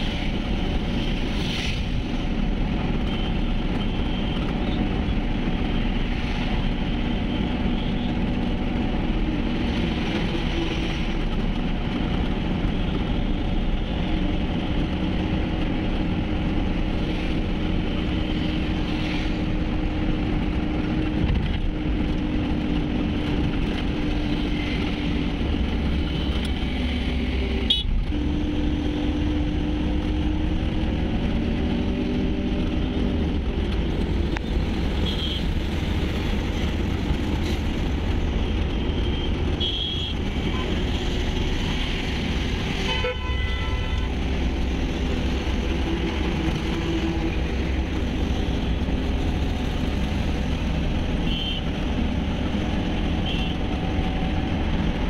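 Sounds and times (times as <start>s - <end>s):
engine and road rumble: 0.0s - 55.0s
vehicle horn toots: 27.7s - 27.9s, 39.0s - 40.6s, 42.9s - 44.1s, 51.2s - 51.6s, 53.2s - 53.6s.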